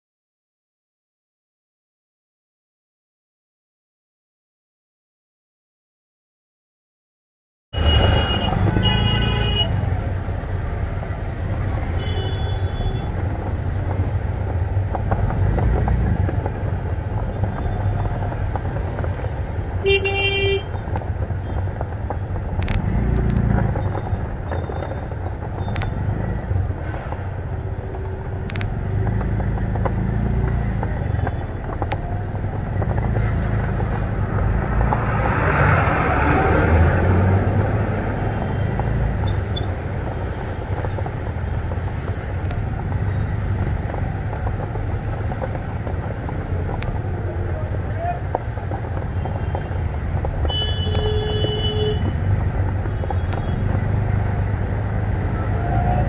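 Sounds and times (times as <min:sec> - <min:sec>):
vehicle horn toot: 0:07.8 - 0:09.8, 0:19.9 - 0:20.7, 0:50.5 - 0:52.1
auto-rickshaw engine rumbling: 0:07.8 - 0:56.0.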